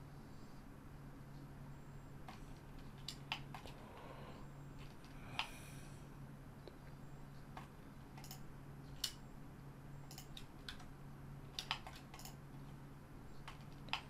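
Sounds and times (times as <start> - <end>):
low steady hum: 0.0 - 14.0
keyboard and mouse clicks: 2.2 - 3.8, 4.8 - 5.6, 7.4 - 9.2, 10.1 - 10.9, 11.5 - 12.7, 13.4 - 14.0.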